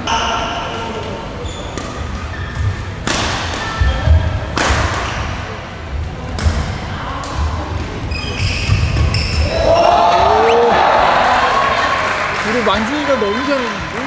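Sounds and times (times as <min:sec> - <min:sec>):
racket striking shuttlecock: 0:03.0 - 0:03.8, 0:04.6 - 0:05.4.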